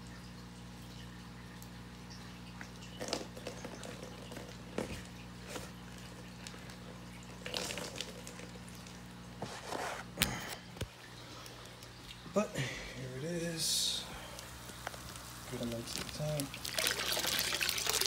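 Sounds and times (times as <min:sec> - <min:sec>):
steady low hum: 0:00.0 - 0:16.6
plastic bag of water rustling: 0:02.9 - 0:10.2, 0:14.3 - 0:18.0.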